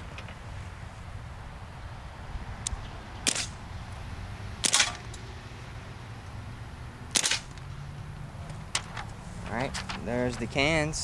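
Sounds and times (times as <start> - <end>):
bb pistol shots popping: 3.2 - 3.6, 4.6 - 5.2, 7.1 - 7.6.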